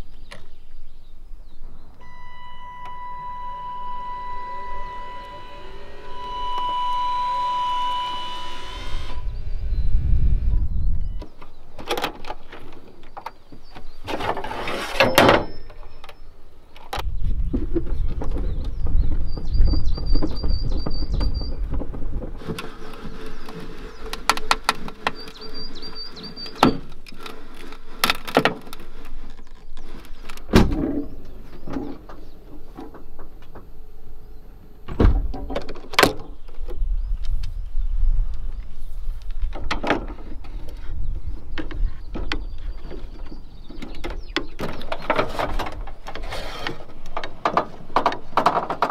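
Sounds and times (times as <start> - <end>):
low rumble: 1.4 - 11.3
metal fittings squeaking and knocking: 22.4 - 30.4
high bird chirps: 25.1 - 26.7.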